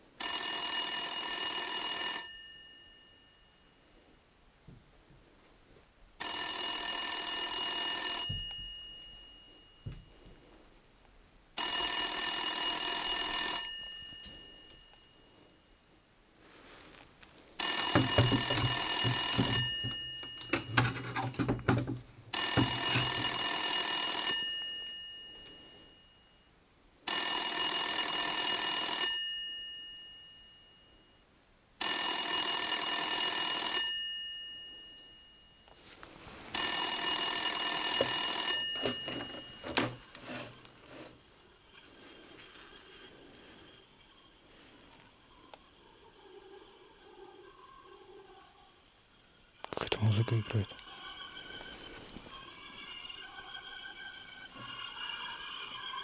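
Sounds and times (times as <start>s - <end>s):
telephone bell ringing: 0.2s - 3.8s, 6.2s - 10.2s, 11.6s - 15.7s, 17.6s - 21.6s, 22.3s - 26.5s, 27.1s - 31.2s, 31.8s - 35.9s, 36.5s - 41.1s.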